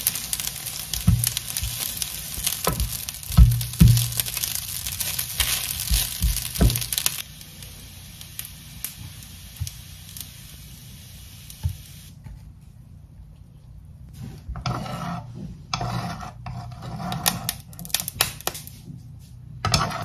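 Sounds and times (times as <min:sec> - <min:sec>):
patties sizzling in oil: 0:00.0 - 0:12.2
spatula knocking against pan: 0:02.6 - 0:04.4.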